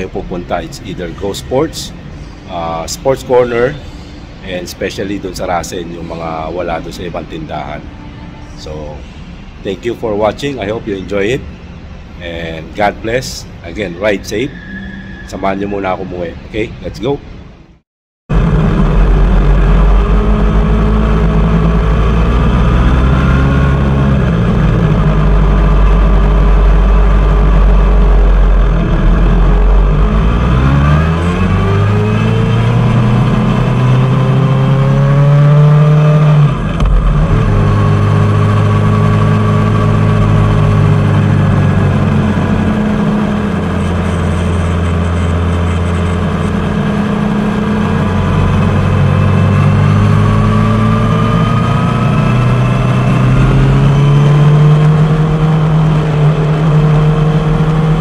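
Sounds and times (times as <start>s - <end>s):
motorcycle engine running: 18.3s - 58.0s.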